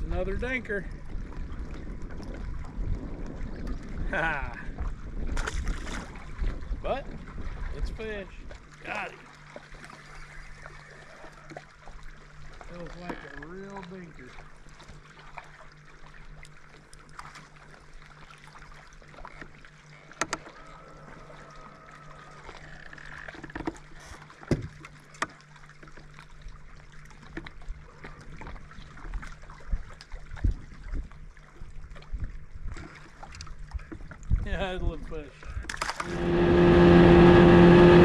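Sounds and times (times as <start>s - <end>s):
small waves lapping against hull: 0.0s - 38.0s
low thumps: 36.0s - 38.0s.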